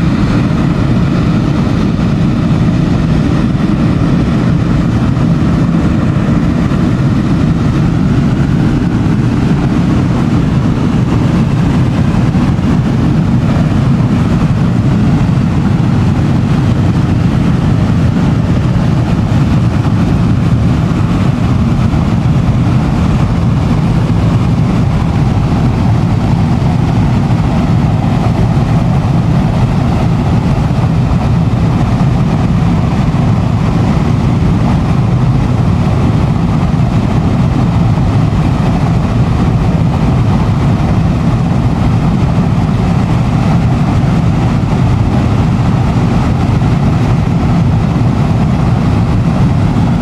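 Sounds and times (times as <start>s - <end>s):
steam venting deep rush: 0.0s - 50.0s.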